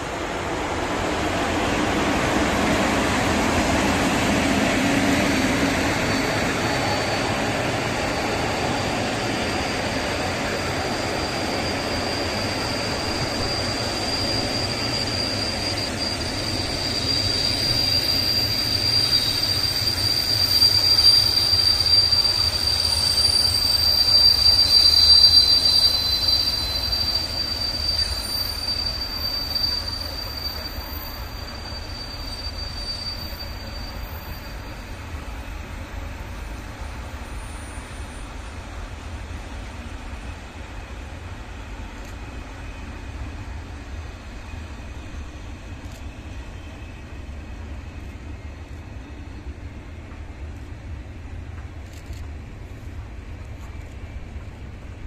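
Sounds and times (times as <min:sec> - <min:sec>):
freight train rolling past: 0:00.0 - 0:55.0
high-pitched wheel squeal: 0:01.7 - 0:38.5.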